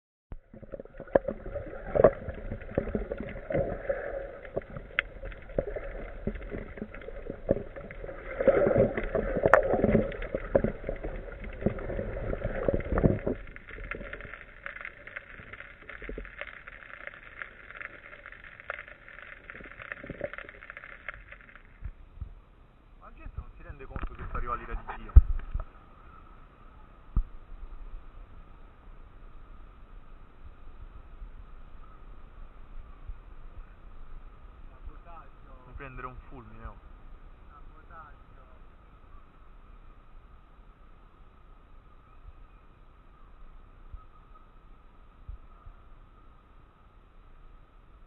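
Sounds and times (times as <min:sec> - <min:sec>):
underwater clicks and knocks: 0:00.3 - 0:22.3, 0:23.4 - 0:25.7
muffled underwater water movement: 0:00.3 - 0:48.0.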